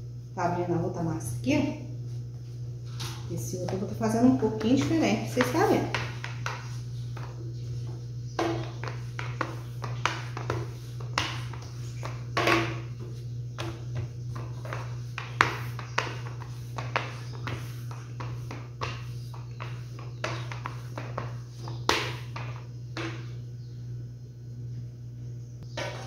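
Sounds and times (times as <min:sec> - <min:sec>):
rolling pin knocking on countertop: 0:04.6 - 0:07.4, 0:08.4 - 0:23.3.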